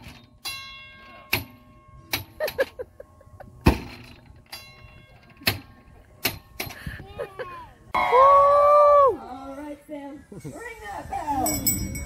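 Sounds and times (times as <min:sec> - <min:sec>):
metal bell ringing: 0:00.1 - 0:02.1, 0:02.8 - 0:05.4, 0:10.4 - 0:12.0.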